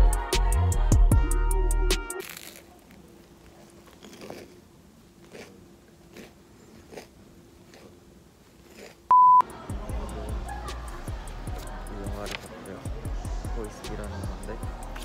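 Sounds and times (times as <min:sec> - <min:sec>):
crisp crunches of chewing: 0:02.2 - 0:09.1.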